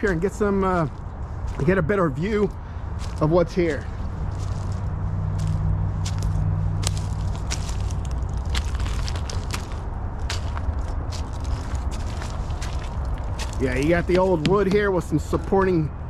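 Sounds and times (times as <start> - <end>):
footsteps crunching on gravel: 0.0 - 15.8
steady low rumble: 0.0 - 16.0.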